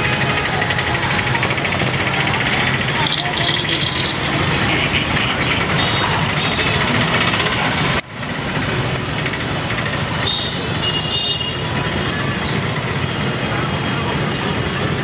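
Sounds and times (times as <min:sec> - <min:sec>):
motor engine running: 0:00.0 - 0:10.2
street traffic: 0:00.0 - 0:15.0.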